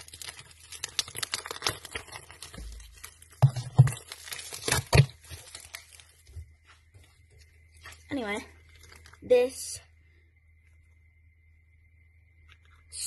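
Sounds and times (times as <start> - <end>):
packaging crinkling and tearing: 0.0 - 6.3, 7.9 - 9.2.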